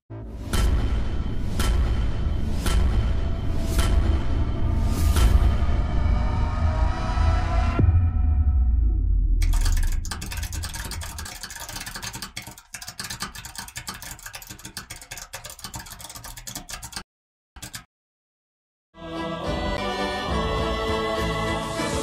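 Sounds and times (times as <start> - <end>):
music: 0.1 - 9.4, 19.0 - 22.0
computer keyboard typing: 9.4 - 17.9.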